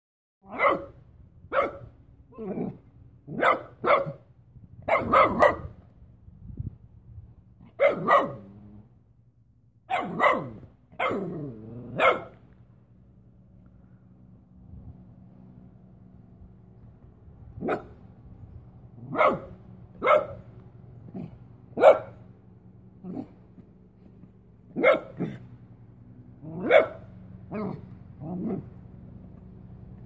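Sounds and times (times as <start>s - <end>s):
puppy barking: 0.4s - 4.3s, 4.9s - 5.8s, 7.7s - 8.5s, 9.9s - 12.4s, 17.6s - 18.0s, 19.0s - 20.5s, 21.2s - 22.2s, 24.7s - 25.4s, 26.4s - 28.6s.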